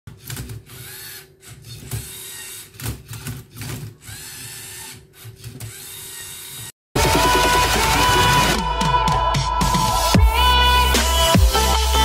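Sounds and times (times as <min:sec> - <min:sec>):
servo motors whirring: 0:00.1 - 0:06.7.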